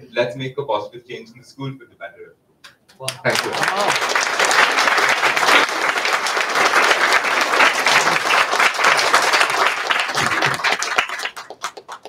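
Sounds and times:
audience applause: 3.1s - 12.0s.

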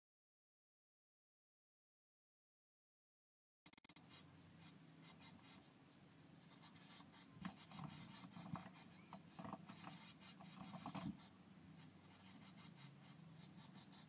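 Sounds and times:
chicks rustling in nest: 3.7s - 14.0s.

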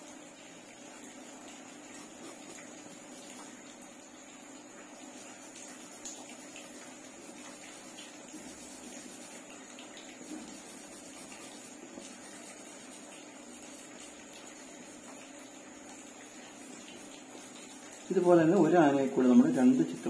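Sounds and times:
pencil scratching on paper: 2.0s - 2.6s, 7.3s - 9.4s, 10.2s - 13.1s.

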